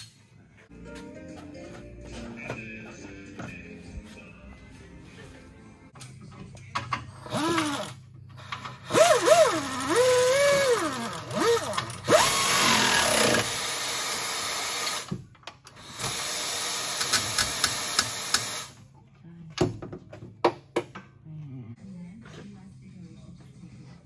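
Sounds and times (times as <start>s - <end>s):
power tool motor running: 8.8s - 15.1s.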